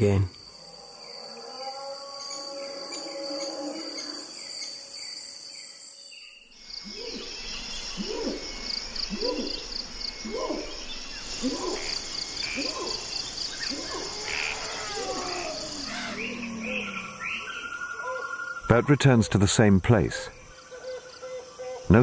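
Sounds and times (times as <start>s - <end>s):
pulsing chorus of insects: 0.0s - 22.0s
animal low hooting call: 13.6s - 18.3s.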